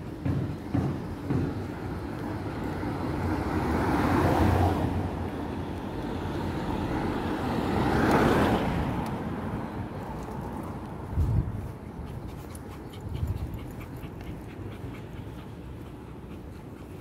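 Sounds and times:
vehicles passing: 0:00.0 - 0:17.0.

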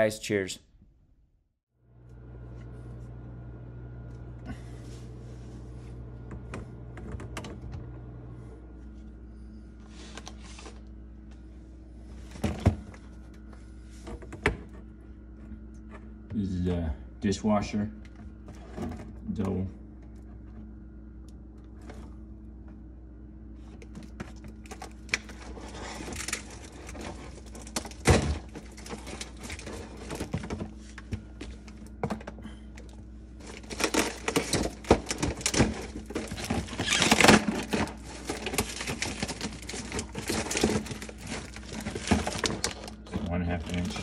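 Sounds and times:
low hum: 0:00.0 - 0:44.0
plastic packaging crinkling: 0:33.4 - 0:44.0.

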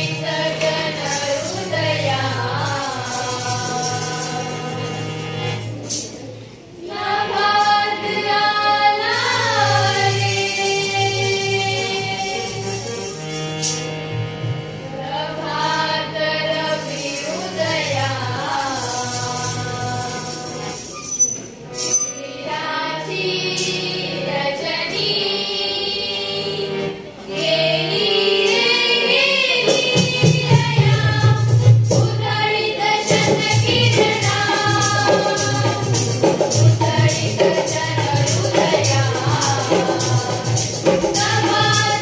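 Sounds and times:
girls singing together: 0:00.0 - 0:05.1, 0:06.8 - 0:12.9, 0:14.9 - 0:20.7, 0:22.3 - 0:42.0
harmonium: 0:00.0 - 0:42.0
tabla: 0:29.6 - 0:32.3, 0:33.0 - 0:42.0.

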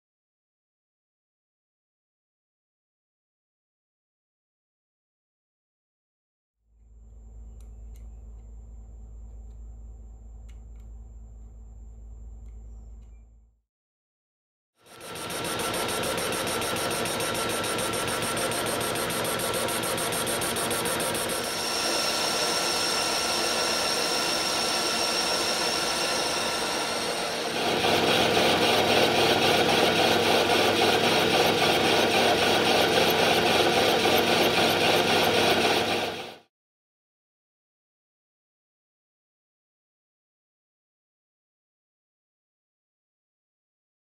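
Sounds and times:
lathe machine hum: 0:14.9 - 0:36.4
hiss of metal cutting: 0:20.6 - 0:28.6.

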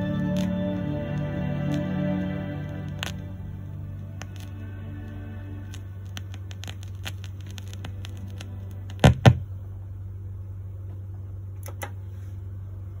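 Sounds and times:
stylus crackling on vinyl: 0:00.0 - 0:09.6
steady low hum: 0:00.0 - 0:13.0.

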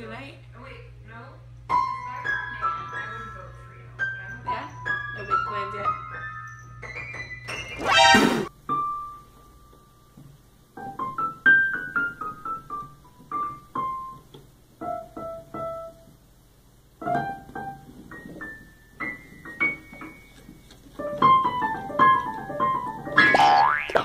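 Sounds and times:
digital piano notes: 0:17.0 - 0:23.8.

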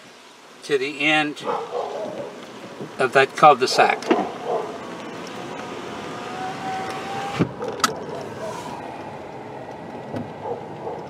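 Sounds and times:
car cabin noise: 0:01.4 - 0:11.0
steady whine: 0:03.0 - 0:11.0.

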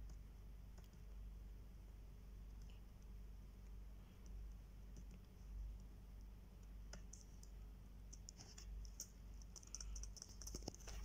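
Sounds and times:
low steady hum: 0:00.0 - 0:11.0
keyboard typing: 0:06.9 - 0:11.0.

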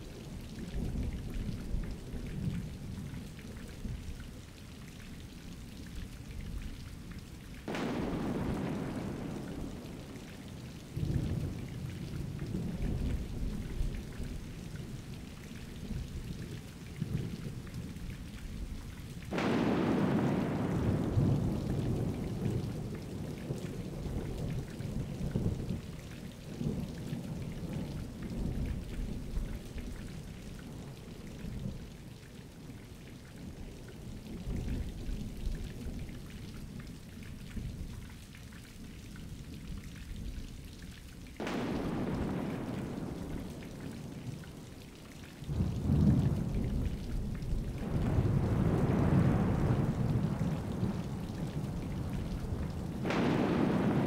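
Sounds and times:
steady rain: 0:00.0 - 0:54.0
sharp thunderclap: 0:07.7 - 0:10.2, 0:19.3 - 0:22.4, 0:41.4 - 0:44.1, 0:52.7 - 0:54.0
low thunder rumbling: 0:07.7 - 0:16.5, 0:18.6 - 0:31.0, 0:41.4 - 0:54.0.

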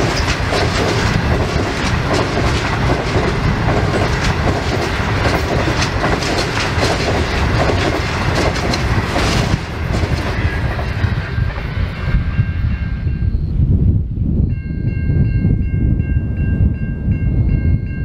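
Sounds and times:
train wheels clicking over rail joints: 0:00.0 - 0:12.4
train rumble: 0:00.0 - 0:18.0.

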